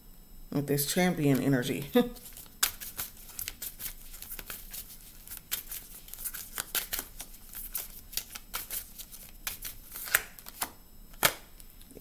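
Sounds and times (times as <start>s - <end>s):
cards being shuffled: 2.2s - 11.5s.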